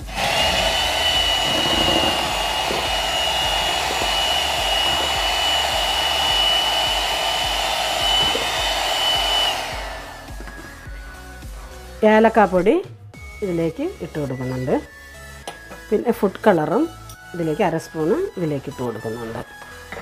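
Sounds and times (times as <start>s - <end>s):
electric hand mixer whining: 0.0s - 11.2s.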